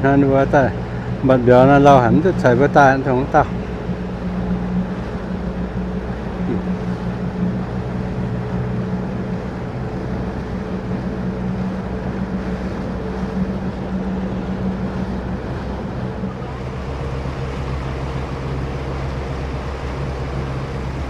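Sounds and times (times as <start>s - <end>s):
boat motor running: 0.0s - 21.0s
water rushing: 0.0s - 21.0s
wind buffeting microphone: 0.0s - 21.0s.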